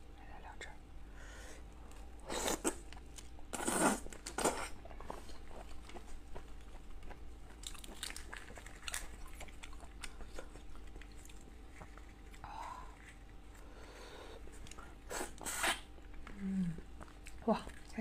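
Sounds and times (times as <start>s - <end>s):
chewing with small clicks: 4.9s - 12.4s, 16.0s - 18.0s.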